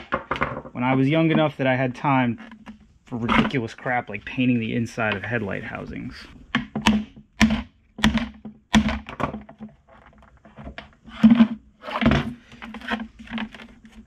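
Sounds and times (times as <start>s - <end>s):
plastic knocks and thunks: 0.0s - 1.5s, 6.5s - 14.0s.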